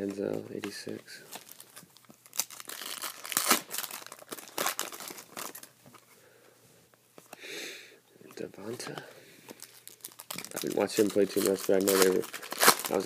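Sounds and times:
foil wrappers crinkling: 0.0s - 5.7s, 9.5s - 13.0s.

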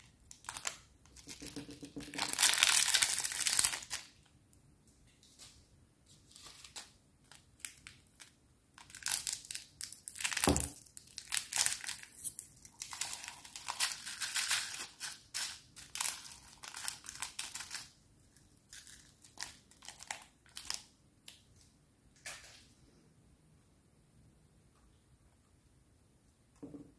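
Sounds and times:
plastic packet crinkling and tearing: 0.0s - 4.3s, 6.3s - 21.4s.

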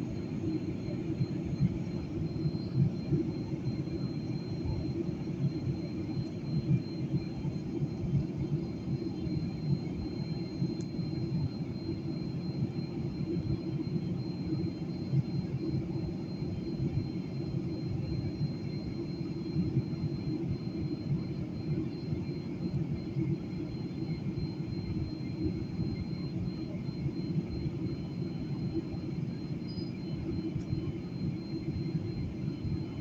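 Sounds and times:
airliner cabin engine rumble: 0.0s - 33.0s.

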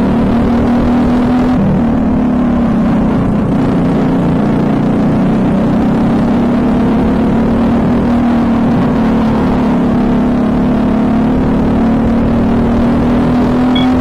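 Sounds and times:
kart engine running hard: 0.0s - 14.0s
wind rush on microphone: 7.5s - 10.3s.

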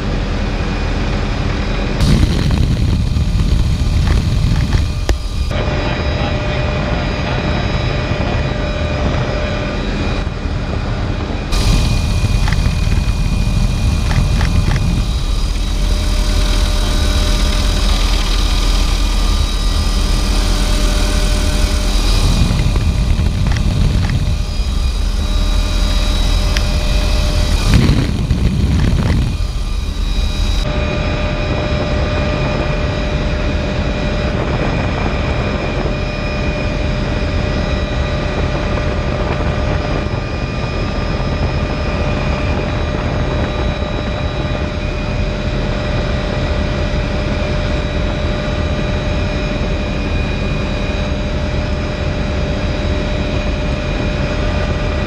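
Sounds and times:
helicopter engine and rotor drone: 0.0s - 55.0s
wind rushing: 2.0s - 7.2s, 8.7s - 36.6s.

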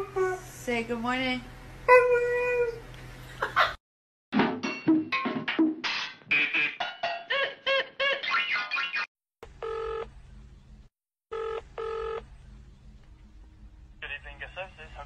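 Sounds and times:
telephone ringback tone: 9.6s - 10.1s, 11.3s - 12.2s.

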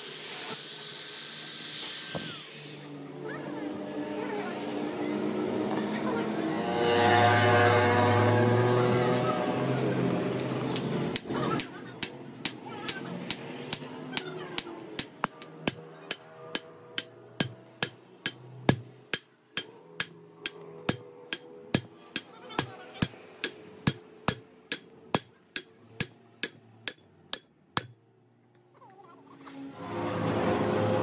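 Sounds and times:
hammer striking steel: 10.7s - 28.0s.

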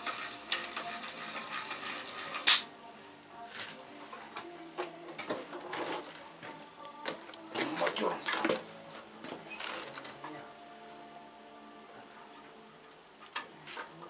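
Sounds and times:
sharp metal clank: 2.4s - 2.7s.

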